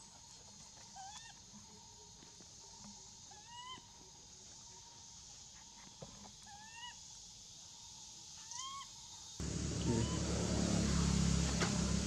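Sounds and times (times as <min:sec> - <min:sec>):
baby monkey coo calls: 0:03.3 - 0:03.9, 0:06.5 - 0:07.0.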